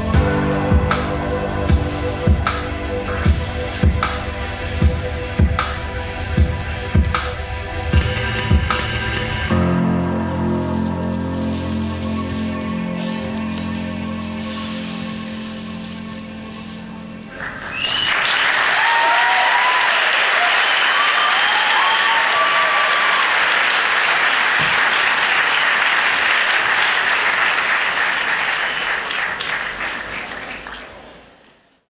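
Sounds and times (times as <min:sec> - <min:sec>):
audience applauding: 0:17.3 - 0:31.7
audience cheering: 0:17.4 - 0:31.2.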